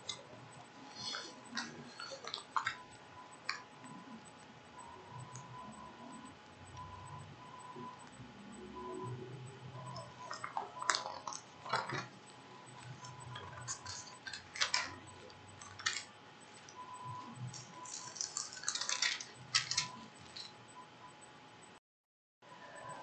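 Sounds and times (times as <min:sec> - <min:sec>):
small objects clicking and rattling: 0:17.5 - 0:20.5.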